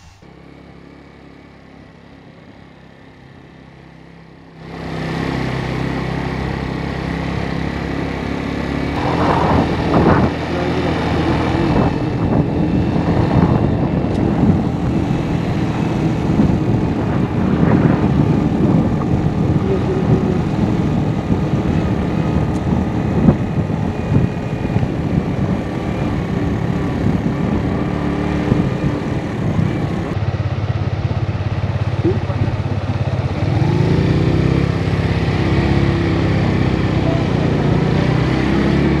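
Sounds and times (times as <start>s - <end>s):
motorcycle engine running: 0.0s - 39.0s
rushing wind noise: 8.0s - 39.0s.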